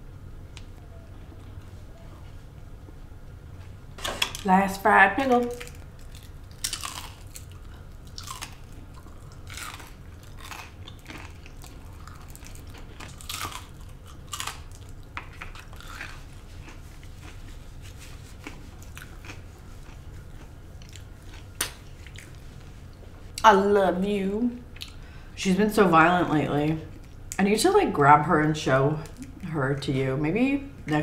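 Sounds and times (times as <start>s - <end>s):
low hum: 0.0s - 31.0s
crunchy chewing: 5.4s - 23.4s.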